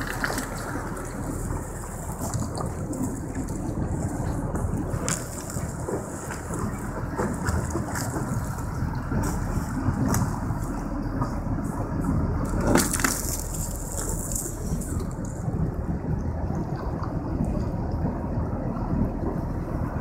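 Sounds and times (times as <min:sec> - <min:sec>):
sea ice cracking against hull: 0:00.0 - 0:10.8, 0:12.4 - 0:15.6
low rumble: 0:00.0 - 0:20.0.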